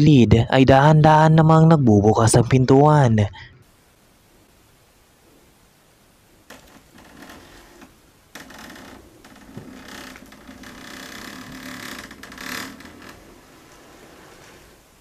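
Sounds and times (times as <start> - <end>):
door creaking open: 6.5 - 14.6.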